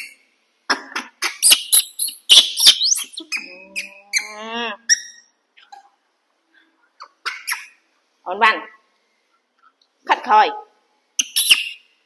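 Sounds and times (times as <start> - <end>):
baby monkeys squeaking: 1.2 - 5.3, 7.0 - 7.8, 11.2 - 11.9.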